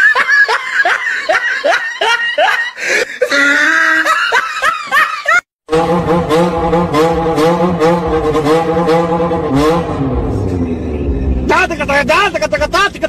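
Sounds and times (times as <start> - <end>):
person laughing hard: 0.0 - 5.5.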